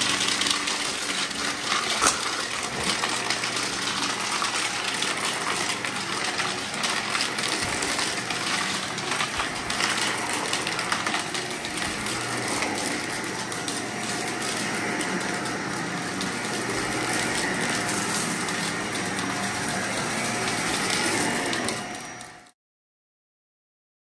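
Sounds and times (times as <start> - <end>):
debris crackling in vacuum: 0.0 - 22.5
vacuum cleaner running: 0.0 - 22.6.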